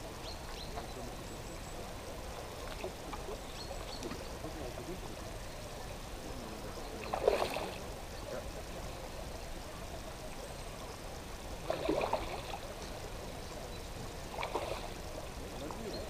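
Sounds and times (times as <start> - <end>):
steady hiss: 0.0 - 16.0
water splashing: 2.4 - 4.4, 6.9 - 8.5, 11.5 - 13.2, 14.2 - 16.0.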